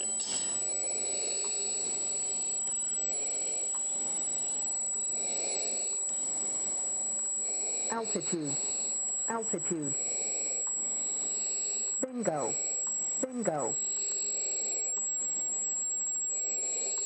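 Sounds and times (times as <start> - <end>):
thin high whine: 0.0 - 17.0.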